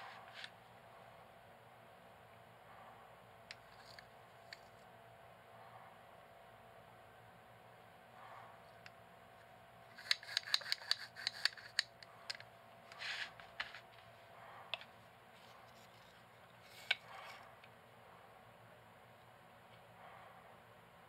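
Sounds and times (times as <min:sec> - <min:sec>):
tube parts rubbing: 0:15.4 - 0:17.4.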